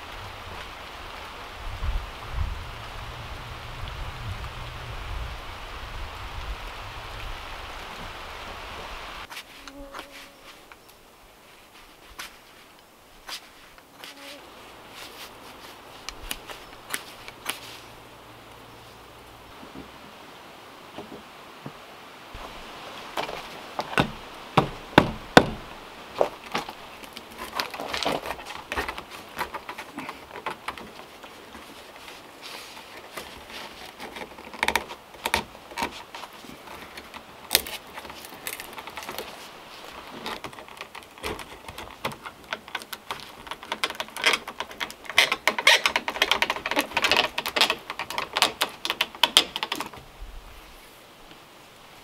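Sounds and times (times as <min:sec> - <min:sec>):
wood knocking on wood: 0:23.2 - 0:31.6.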